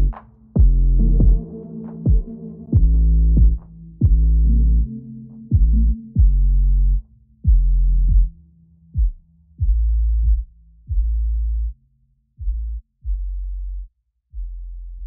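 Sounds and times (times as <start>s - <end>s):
deep electronic bass notes: 0.0s - 8.4s, 9.0s - 11.8s.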